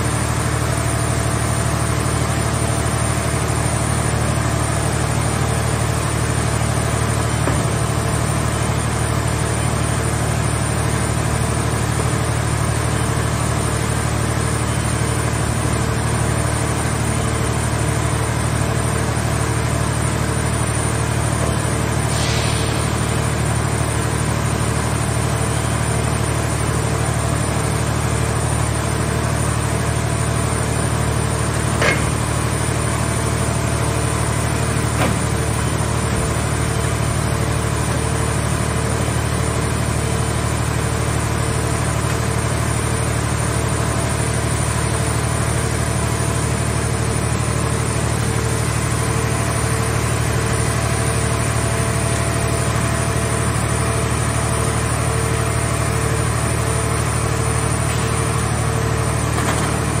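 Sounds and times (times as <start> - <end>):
hydraulic power unit droning: 0.0 - 60.0.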